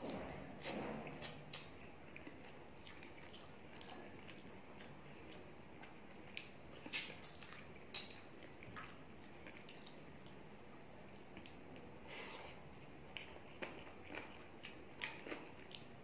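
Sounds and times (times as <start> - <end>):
lip smacks from chewing: 0.0 - 10.4
wet squishes of fingers mixing food: 0.0 - 16.0.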